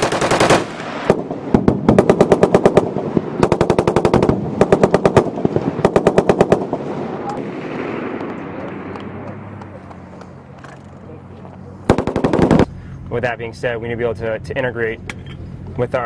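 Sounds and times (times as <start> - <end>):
machine gun bursts: 0.0 - 0.7, 11.9 - 12.6.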